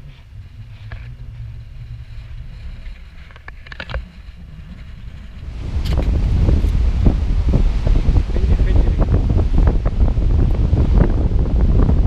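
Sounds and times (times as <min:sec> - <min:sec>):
wind buffeting microphone: 0:00.0 - 0:12.0
distant waterfall roar: 0:05.4 - 0:12.0.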